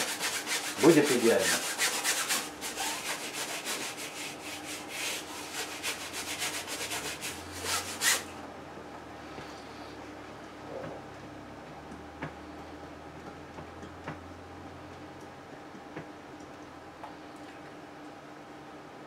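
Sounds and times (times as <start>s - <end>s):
brush scrubbing on canvas: 0.0s - 8.3s.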